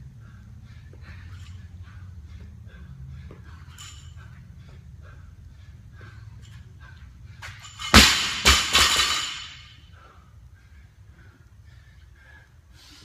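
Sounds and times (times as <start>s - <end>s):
barbell dropped on rubber floor: 7.6s - 9.7s.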